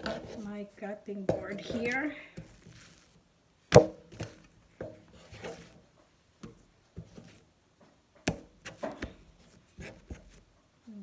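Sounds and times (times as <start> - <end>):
scraper scraping dough: 0.0 - 0.5, 1.4 - 3.2, 4.1 - 5.8.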